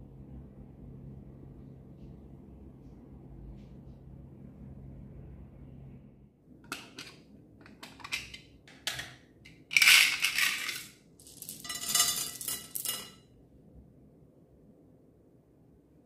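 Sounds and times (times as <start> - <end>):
plastic beads clattering into glass dish: 7.8 - 13.2.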